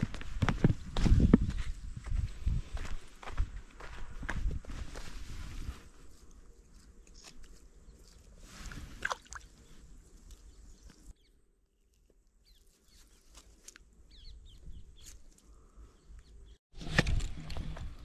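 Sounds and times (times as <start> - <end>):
rustles: 4.6 - 11.1, 11.8 - 13.9.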